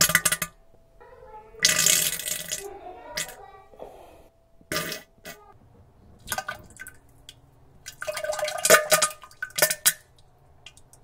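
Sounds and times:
wet sputtering farts: 0:04.7 - 0:05.4.

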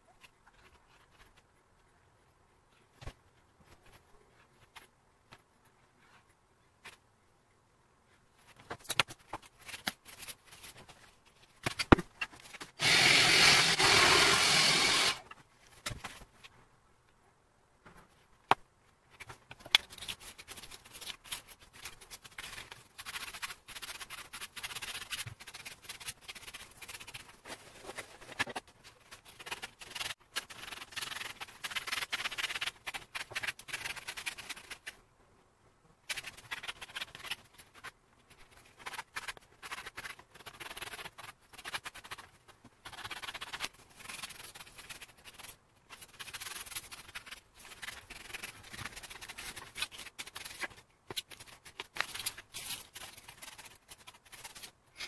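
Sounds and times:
sanding block scratching leather: 0:12.8 - 0:15.2.

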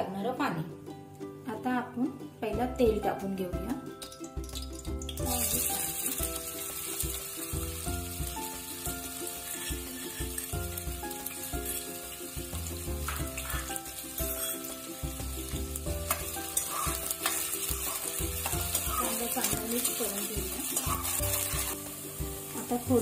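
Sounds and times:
onions sizzling in hot oil: 0:04.0 - 0:23.0
spoon scraping and tapping pan: 0:09.4 - 0:11.9, 0:12.9 - 0:22.0.

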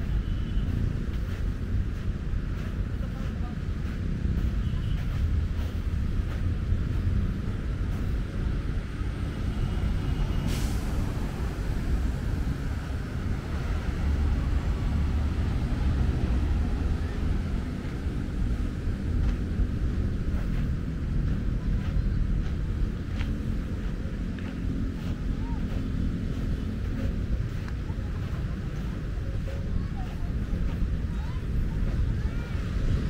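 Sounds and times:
road traffic rumble: 0:00.0 - 0:33.0
brief hiss: 0:10.3 - 0:11.3.

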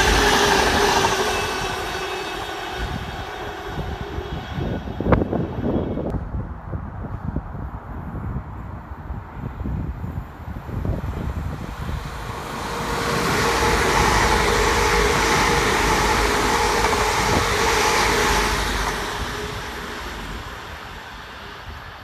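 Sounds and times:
electric train passing at speed: 0:00.0 - 0:06.4, 0:07.1 - 0:22.0.

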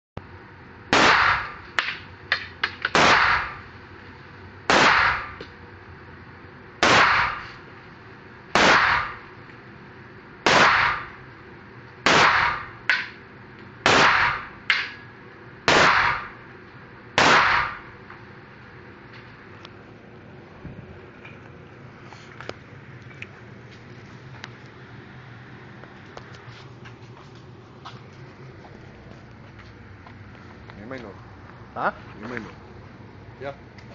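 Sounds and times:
pistol shots: 0:00.9 - 0:01.6, 0:02.9 - 0:03.6, 0:04.7 - 0:05.4, 0:06.8 - 0:07.5, 0:08.5 - 0:09.2, 0:10.4 - 0:11.2, 0:12.0 - 0:13.0, 0:13.8 - 0:14.6, 0:15.7 - 0:16.4, 0:17.2 - 0:17.9.

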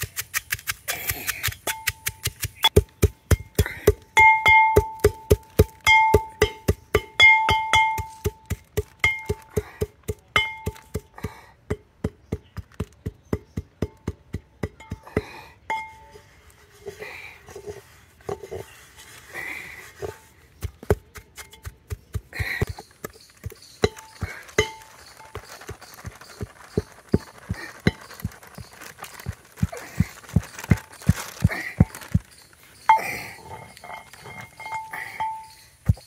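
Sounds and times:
pestle pounding in mortar: 0:00.0 - 0:15.9, 0:20.6 - 0:28.3.

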